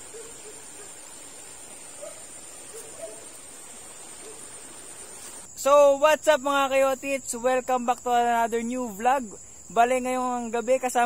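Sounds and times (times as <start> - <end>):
faint low animal calls: 0.0 - 1.2
night insects trilling: 0.0 - 11.0.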